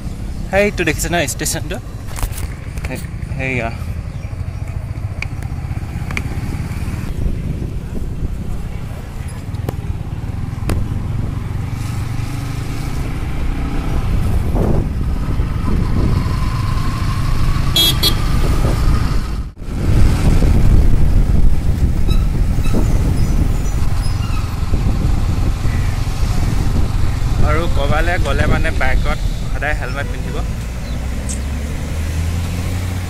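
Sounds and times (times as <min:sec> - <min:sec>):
motorcycle engine and road noise: 0:00.0 - 0:33.0
passing vehicle: 0:00.0 - 0:33.0
wind on microphone: 0:05.8 - 0:33.0
horn toot: 0:17.7 - 0:18.4.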